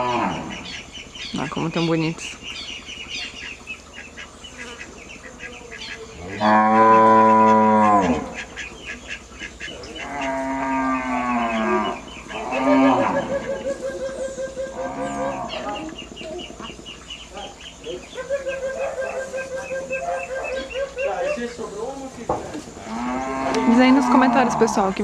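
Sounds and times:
cow mooing: 0:00.0 - 0:00.6, 0:06.2 - 0:08.4, 0:10.0 - 0:13.4, 0:14.7 - 0:15.9, 0:22.8 - 0:25.0.

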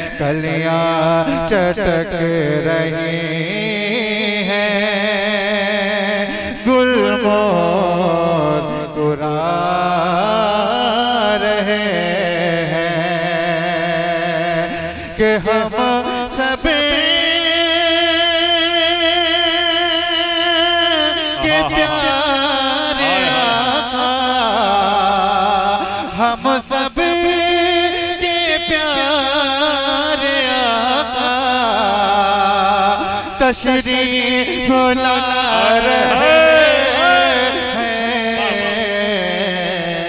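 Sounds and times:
man singing into microphone: 0:00.0 - 0:40.0
man breathing: 0:06.3 - 0:06.6, 0:14.7 - 0:15.2, 0:21.1 - 0:21.9, 0:25.8 - 0:26.2, 0:33.0 - 0:33.4, 0:35.5 - 0:38.8.

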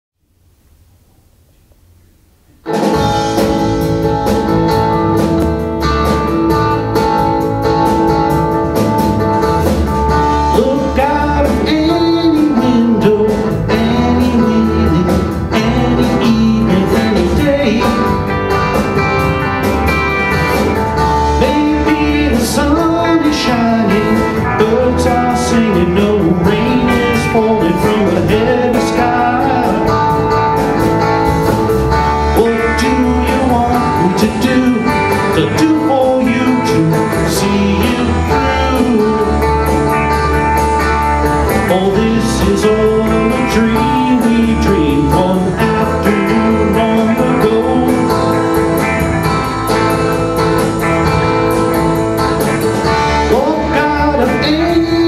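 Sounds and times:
live rock band playing: 0:02.6 - 0:55.0
person singing: 0:10.2 - 0:18.8, 0:21.0 - 0:30.8, 0:32.0 - 0:48.8, 0:52.9 - 0:55.0.

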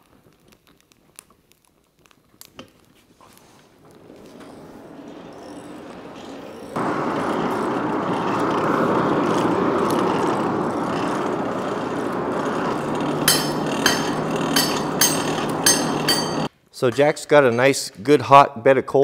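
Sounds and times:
forge fire roaring: 0:03.3 - 0:16.5.

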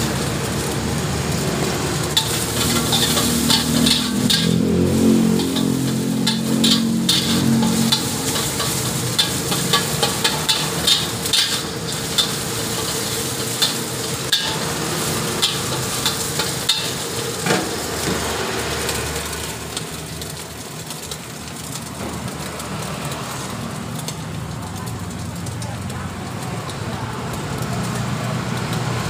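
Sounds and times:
hot pan sizzling: 0:00.0 - 0:29.0
metal spatula scraping a wok: 0:02.0 - 0:20.0.

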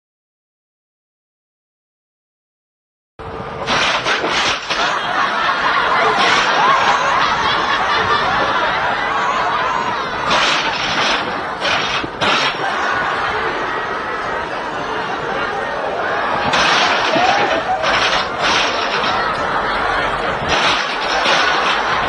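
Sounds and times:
metal swing set knocking and rattling: 0:03.6 - 0:08.9, 0:09.9 - 0:13.0, 0:16.4 - 0:22.0
people laughing loudly: 0:03.7 - 0:22.0.

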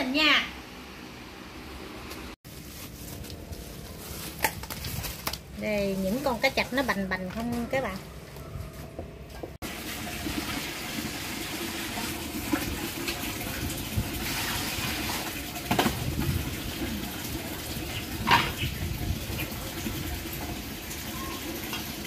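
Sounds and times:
dipper scooping water: 0:09.6 - 0:22.0
water poured and splashed: 0:09.6 - 0:22.0.

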